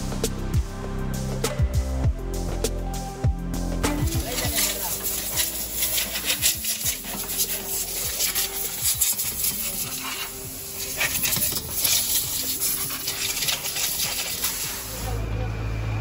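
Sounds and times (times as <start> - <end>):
rough rubbing strokes: 4.1 - 15.1.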